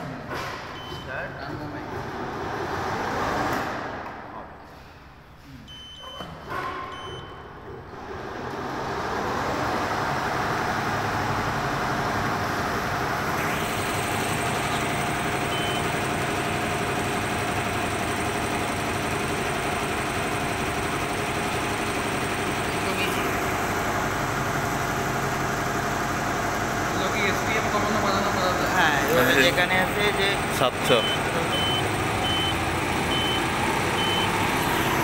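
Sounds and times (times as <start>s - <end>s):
short electronic beeps: 0.8s - 1.1s, 5.7s - 6.3s, 6.9s - 7.5s, 13.6s - 15.9s, 30.9s - 34.4s
embroidery machine running: 7.9s - 35.0s.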